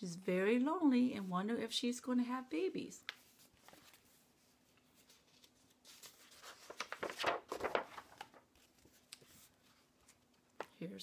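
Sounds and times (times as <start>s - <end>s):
book page turning: 3.0s - 10.7s.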